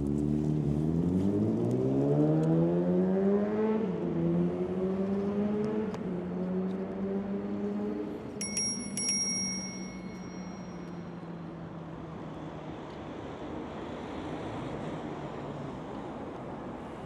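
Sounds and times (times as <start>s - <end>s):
street traffic noise: 0.0s - 17.0s
sharp metallic pings: 8.4s - 11.4s.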